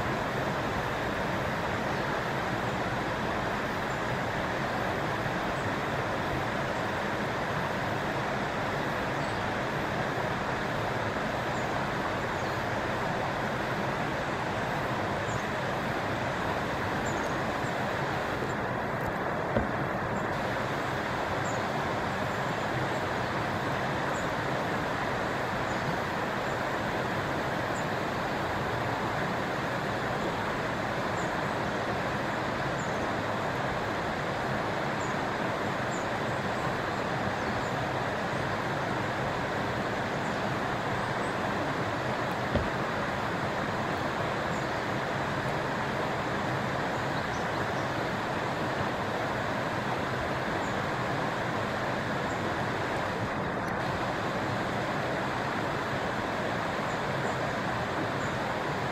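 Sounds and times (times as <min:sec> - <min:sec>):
river flowing over stones: 0:00.0 - 0:58.9.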